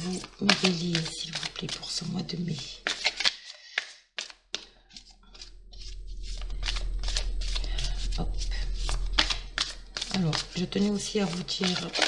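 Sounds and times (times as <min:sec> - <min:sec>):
cards being shuffled: 0:00.0 - 0:05.5, 0:09.2 - 0:12.0
steady low hum: 0:05.1 - 0:12.0.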